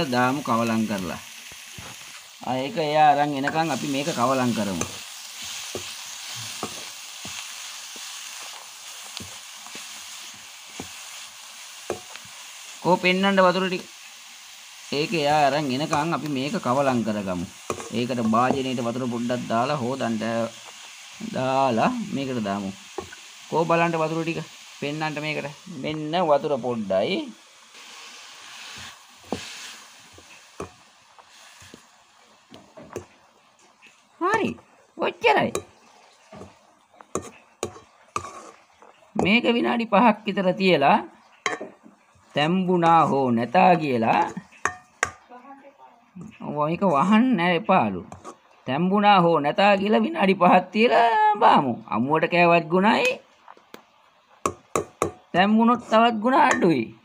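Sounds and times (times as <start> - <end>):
wooden spatula stirring in pan: 0.0 - 14.1, 14.7 - 40.4, 41.2 - 45.3, 48.0 - 48.7, 53.1 - 56.7
vegetables sizzling in oil: 0.0 - 57.0
wooden spoon knocking pan: 11.9 - 12.2, 30.2 - 30.8, 35.5 - 38.4, 41.4 - 42.0, 44.0 - 45.3, 54.4 - 55.3.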